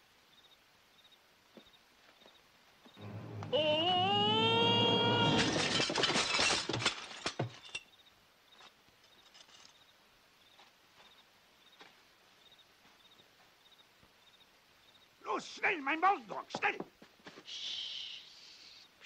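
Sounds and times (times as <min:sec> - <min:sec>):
slapstick crash of shattering: 0:05.1 - 0:07.8.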